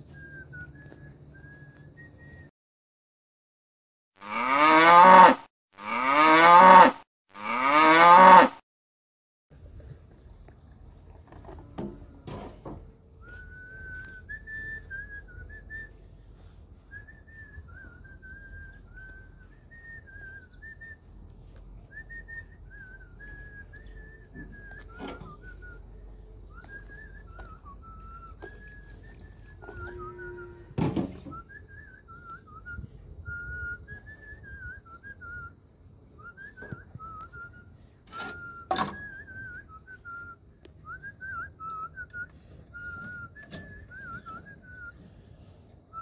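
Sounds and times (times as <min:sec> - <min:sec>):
faint whistling: 0:00.0 - 0:02.5, 0:13.2 - 0:16.1, 0:16.8 - 0:21.1, 0:21.8 - 0:35.6, 0:36.2 - 0:46.0
cow mooing: 0:04.2 - 0:08.6, 0:29.6 - 0:30.8.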